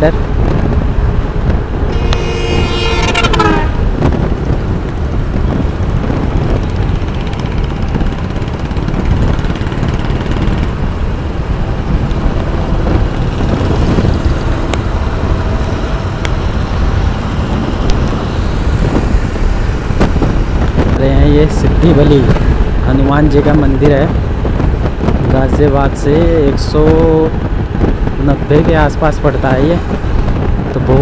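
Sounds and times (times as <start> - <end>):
scooter engine and road noise: 0.0 - 31.0
wind buffeting the microphone: 0.0 - 31.0
short pitched tone: 1.9 - 3.8.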